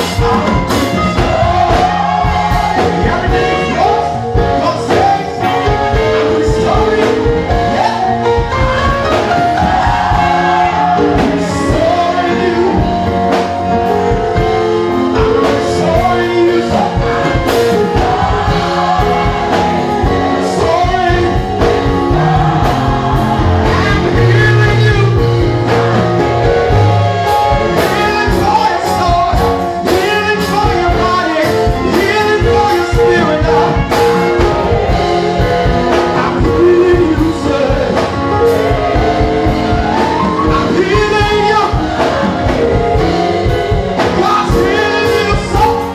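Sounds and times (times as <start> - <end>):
gospel choir singing: 0.0 - 45.9
keyboard: 0.0 - 45.9
saxophone: 0.0 - 45.9.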